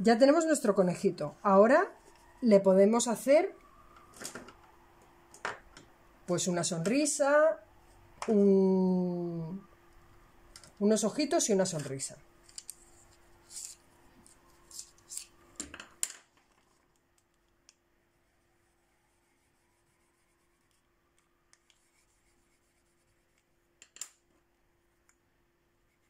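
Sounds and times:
pencils clicking and clattering: 11.7s - 13.8s
pencil drawing on paper: 18.6s - 20.8s, 21.6s - 23.5s, 25.8s - 26.0s.

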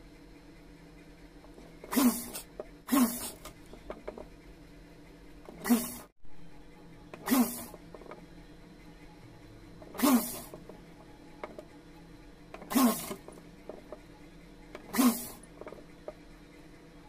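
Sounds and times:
sewing machine stitching: 1.6s - 4.3s, 5.4s - 6.1s, 7.1s - 8.2s, 9.8s - 11.6s, 12.5s - 14.1s, 14.7s - 16.2s.

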